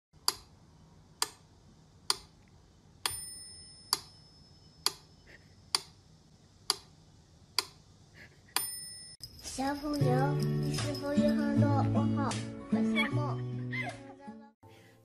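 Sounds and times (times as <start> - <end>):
metronome bell ringing: 3.1 - 4.8, 8.6 - 12.3.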